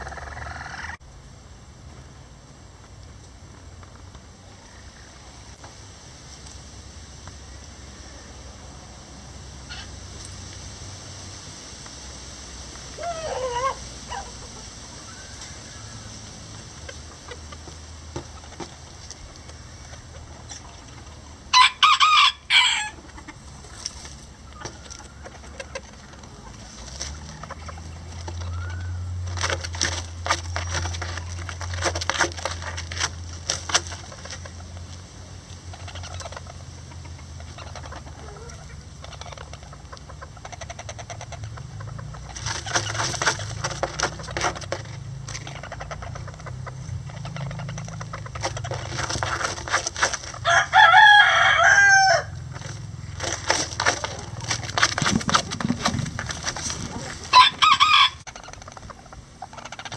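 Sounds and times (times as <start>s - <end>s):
chickens clucking softly: 0.0s - 1.0s, 9.6s - 10.4s, 12.7s - 21.5s, 22.7s - 50.4s, 52.3s - 59.9s
rooster crowing: 21.5s - 23.0s, 50.4s - 52.4s, 56.9s - 58.3s
rustling in dry straw: 47.0s - 59.0s.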